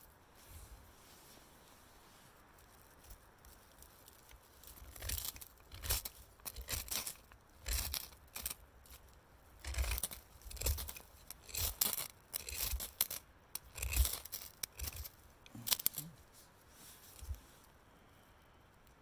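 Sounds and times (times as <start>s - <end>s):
knife scraping wood shavings: 4.2s - 9.0s, 9.6s - 16.2s.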